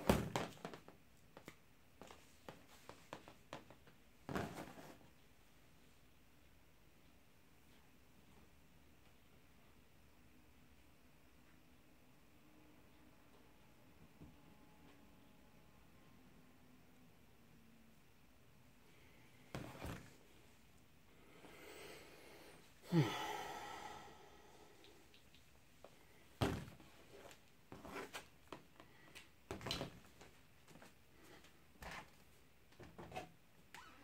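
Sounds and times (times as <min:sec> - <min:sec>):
short falling sigh: 0:22.8 - 0:25.1.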